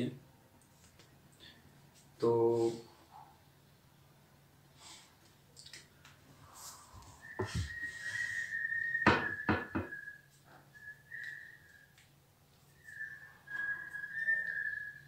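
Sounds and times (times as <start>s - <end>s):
high whistling tone: 6.4s - 15.0s
sharp knocks: 9.0s - 10.0s.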